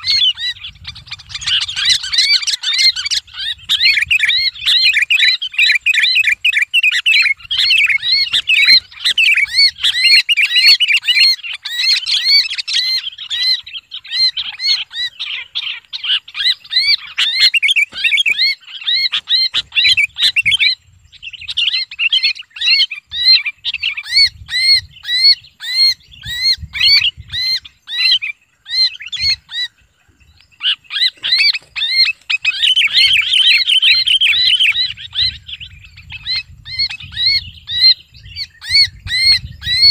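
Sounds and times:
bird distress calls: 0:00.0 - 0:39.9.

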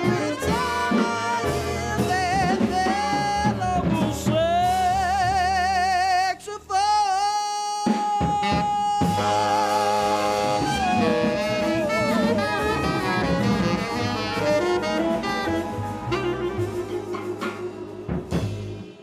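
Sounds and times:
jazz band playing: 0:00.0 - 0:07.0, 0:07.7 - 0:19.0
man singing with vibrato: 0:00.0 - 0:14.9.

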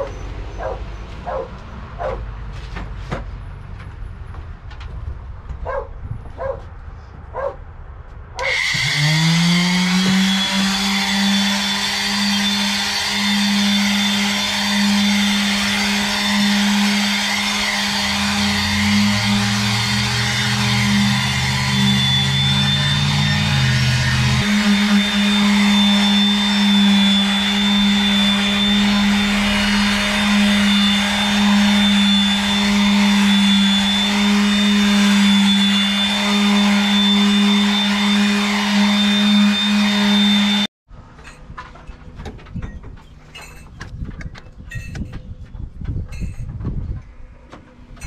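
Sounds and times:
palm sander running: 0:08.4 - 0:40.7.

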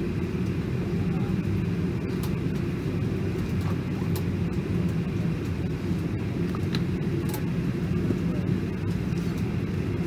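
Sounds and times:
airliner cabin rumble: 0:00.0 - 0:10.0.

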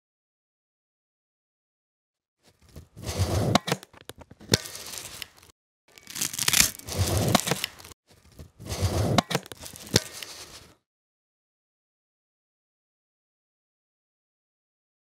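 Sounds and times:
strap rasping through buckle: 0:03.2 - 0:08.0.

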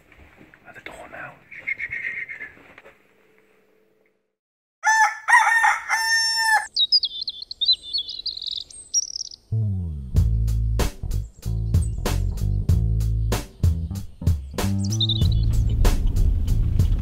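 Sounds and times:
rooster crowing: 0:04.8 - 0:06.8
small bird warbling: 0:06.4 - 0:09.5, 0:14.4 - 0:15.5
music with heavy bass: 0:09.6 - 0:17.0.

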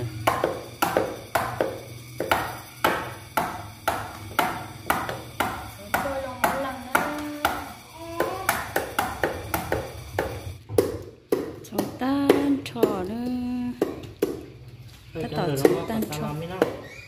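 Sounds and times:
knife chopping on wooden block: 0:00.2 - 0:13.0.

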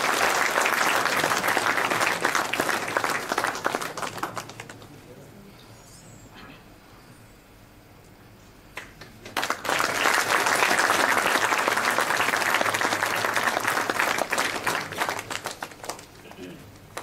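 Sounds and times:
audience applauding: 0:00.0 - 0:04.9, 0:08.8 - 0:17.0.

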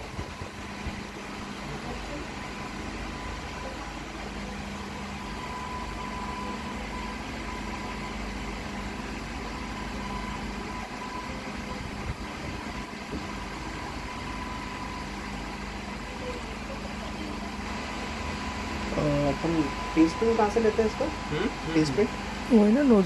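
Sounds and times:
machine hum with high whine: 0:00.0 - 0:23.0.

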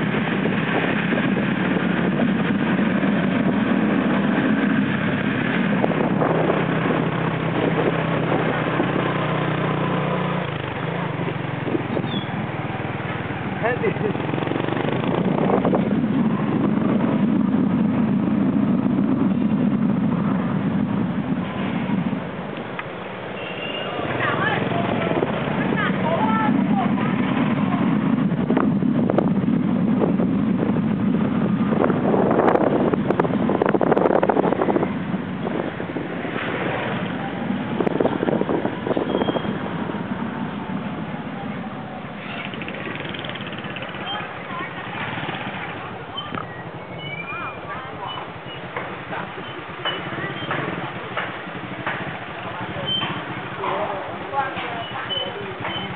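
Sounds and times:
motorbike running: 0:00.0 - 0:55.9
wind rushing over microphone: 0:00.0 - 0:55.9
motorbike engine running: 0:42.1 - 0:46.8.

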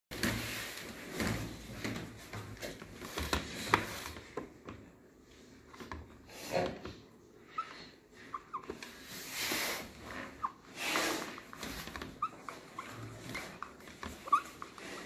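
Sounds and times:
scrape: 0:08.9 - 0:11.8.

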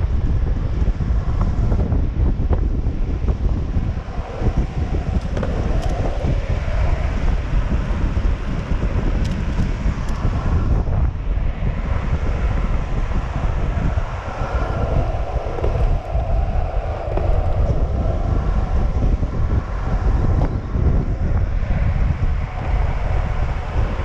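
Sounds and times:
skateboard wheels rolling on asphalt: 0:00.0 - 0:24.0
wind buffeting microphone: 0:00.0 - 0:24.0.

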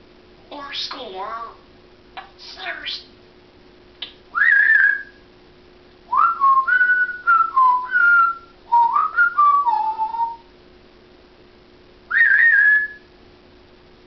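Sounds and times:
parrot whistling: 0:04.3 - 0:05.2, 0:06.2 - 0:10.4, 0:12.1 - 0:13.1.

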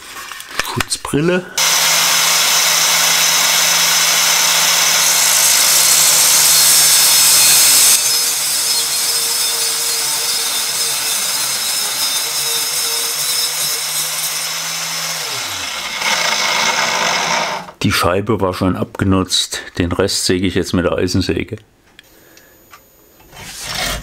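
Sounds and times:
angle grinder cutting steel: 0:01.6 - 0:17.8
grinder disc spinning down: 0:01.6 - 0:17.8.

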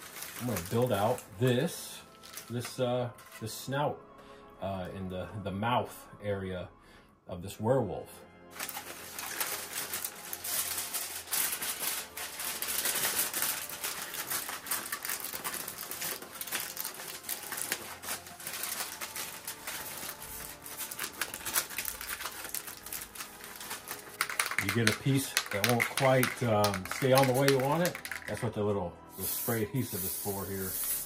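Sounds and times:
aluminum foil crinkling: 0:00.0 - 0:03.4, 0:08.6 - 0:28.5.

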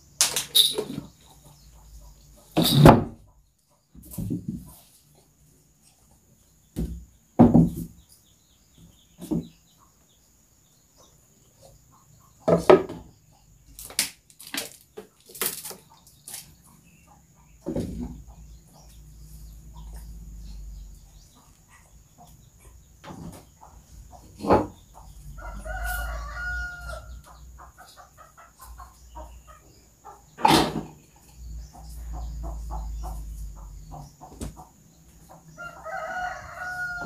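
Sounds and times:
knocks and thumps: 0:02.6 - 0:03.3, 0:03.9 - 0:04.7, 0:06.7 - 0:08.0, 0:09.2 - 0:09.6, 0:12.4 - 0:13.1, 0:17.6 - 0:18.3, 0:24.2 - 0:24.8, 0:34.3 - 0:34.7.

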